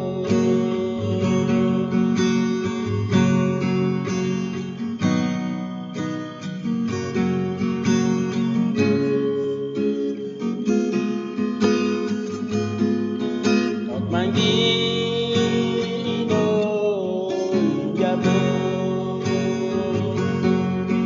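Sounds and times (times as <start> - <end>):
person singing long note: 0.0 - 2.2
strummed acoustic guitar: 0.0 - 21.0.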